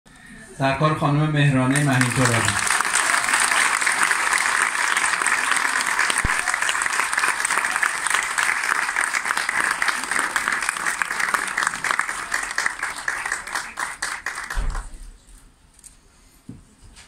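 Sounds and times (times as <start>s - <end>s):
large audience applauding: 1.7s - 15.0s.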